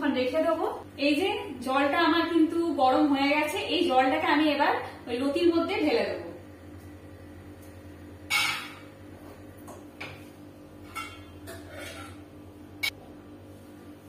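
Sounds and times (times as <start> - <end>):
steady low hum: 0.0 - 14.0
metal cookware clinking: 8.3 - 8.8, 10.8 - 12.2.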